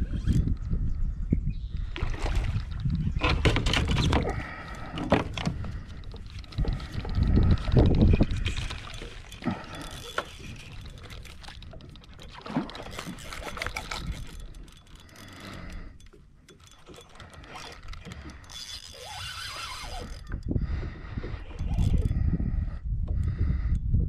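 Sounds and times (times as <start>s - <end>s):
fishing reel being wound: 5.7s - 20.5s, 21.4s - 22.2s
fishing reel drag giving line: 6.4s - 20.4s.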